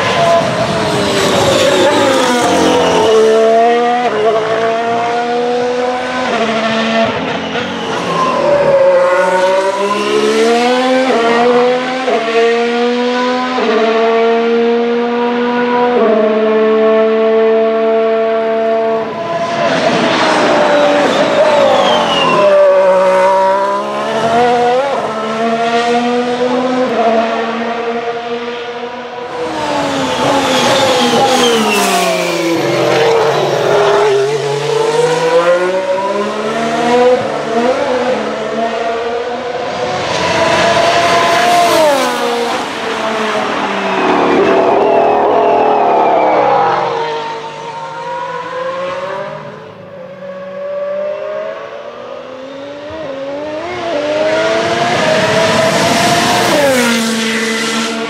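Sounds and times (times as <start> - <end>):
racing car engine through gear changes: 29.4 - 49.7.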